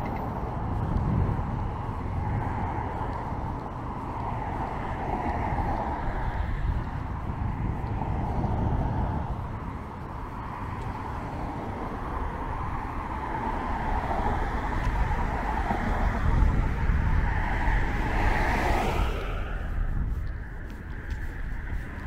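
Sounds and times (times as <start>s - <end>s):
road traffic: 0.0s - 22.0s
car passing close by: 10.4s - 22.0s.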